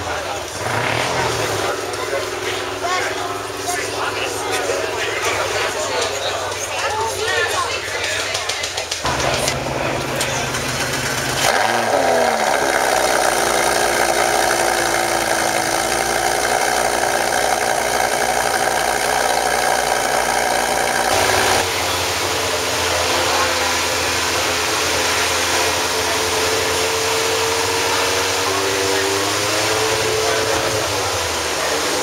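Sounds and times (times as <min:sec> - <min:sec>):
car engine starting and idling: 0:08.4 - 0:32.0.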